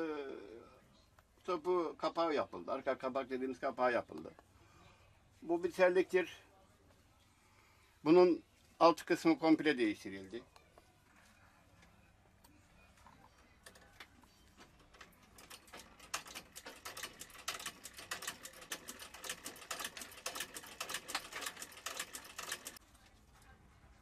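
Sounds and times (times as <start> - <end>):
sewing machine stitching: 15.2 - 22.8.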